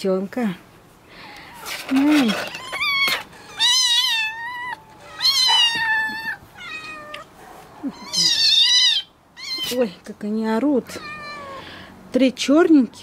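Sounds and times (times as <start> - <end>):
kittens meowing: 1.2 - 9.8, 10.9 - 11.8.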